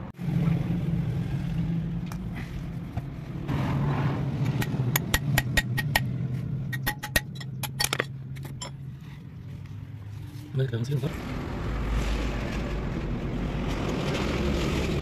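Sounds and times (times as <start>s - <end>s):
low engine-like hum: 0.0s - 15.0s
metallic clicks and taps: 6.7s - 8.7s.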